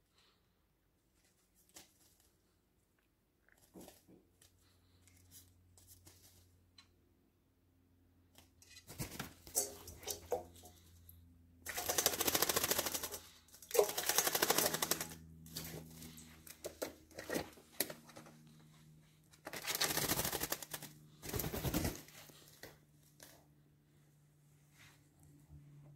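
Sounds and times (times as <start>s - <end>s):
bird wing-beating and splashing: 8.9s - 10.8s, 11.7s - 18.0s, 19.5s - 22.1s
small splashes and taps: 9.1s - 11.1s, 11.7s - 18.1s.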